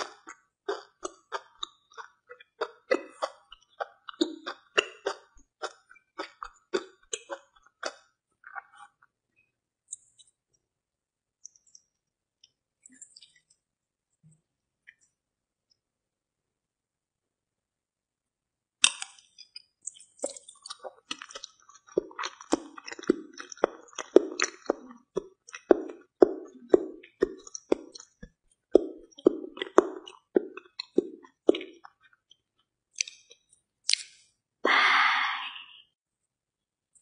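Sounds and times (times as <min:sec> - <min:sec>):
wet chewing: 0:00.0 - 0:09.0, 0:18.9 - 0:34.1.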